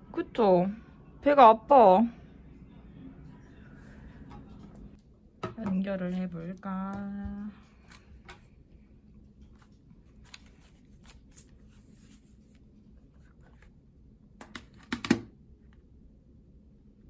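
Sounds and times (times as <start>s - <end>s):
faint plastic rustling: 5.8s - 13.8s.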